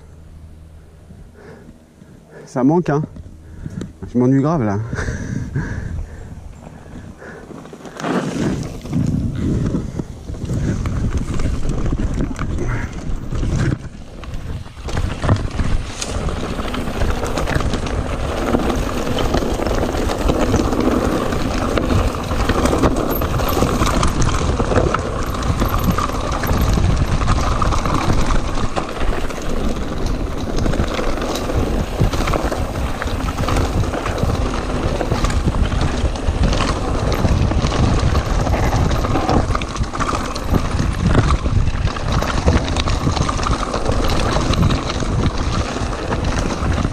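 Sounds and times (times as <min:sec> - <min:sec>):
bike rattling and knocking: 0:02.8 - 0:46.9
wind noise on microphone: 0:03.0 - 0:46.9
tyres crunching over stones: 0:10.4 - 0:46.9.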